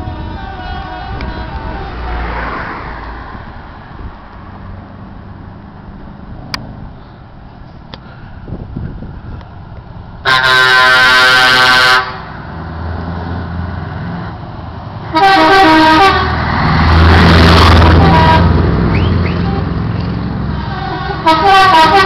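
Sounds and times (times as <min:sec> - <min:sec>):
truck air horn blasts: 0:00.0 - 0:02.8, 0:10.2 - 0:12.4, 0:15.0 - 0:22.0
diesel engines rumbling: 0:00.0 - 0:22.0
truck driving past: 0:00.0 - 0:22.0.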